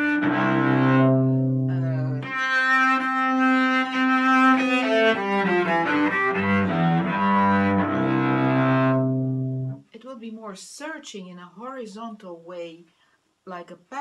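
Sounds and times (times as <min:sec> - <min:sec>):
bowed cello: 0:00.0 - 0:09.8.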